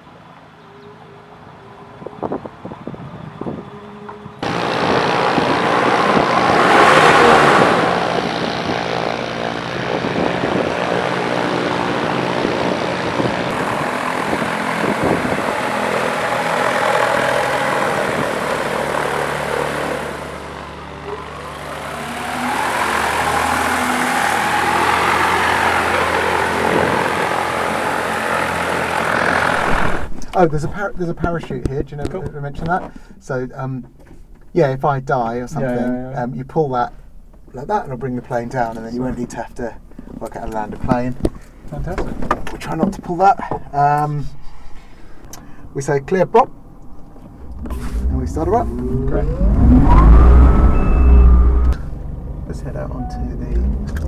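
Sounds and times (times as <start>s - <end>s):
electric propeller aircraft whirring: 0.0s - 30.2s, 46.8s - 52.5s.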